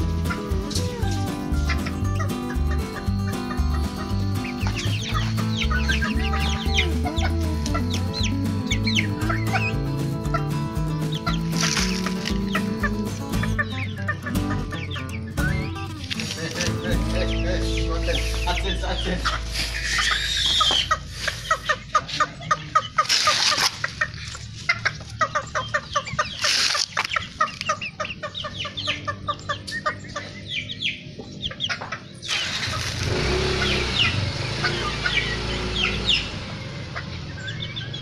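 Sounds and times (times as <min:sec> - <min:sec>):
chickens clucking: 0:00.0 - 0:38.0
short high chicken calls: 0:19.2 - 0:21.8.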